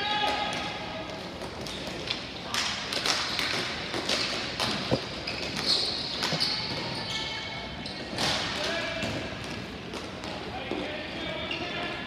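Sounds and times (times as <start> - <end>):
hockey sticks and ball tapping: 1.2 - 6.5.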